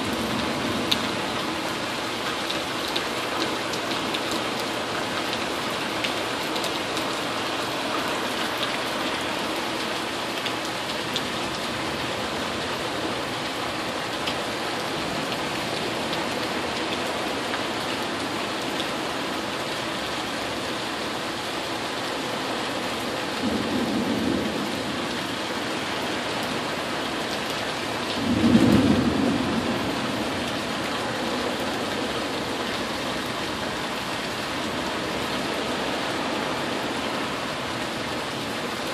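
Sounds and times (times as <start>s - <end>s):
steady rain: 0.0s - 38.9s
low rumbles of thunder: 23.4s - 25.5s, 28.1s - 32.4s.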